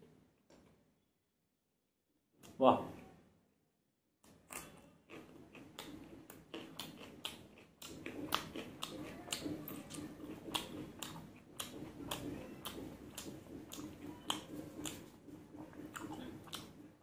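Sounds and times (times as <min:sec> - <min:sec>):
person chewing crunchy food: 0:04.2 - 0:17.0.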